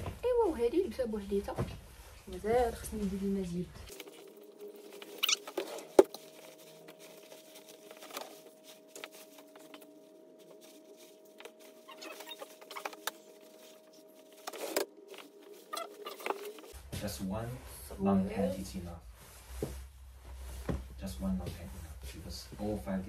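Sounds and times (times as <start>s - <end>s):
fabric rustling: 1.4s - 16.8s.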